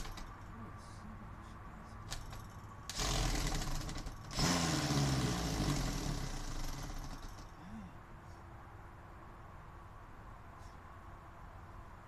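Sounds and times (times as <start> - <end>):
motor vehicle passing by: 2.6 - 7.9.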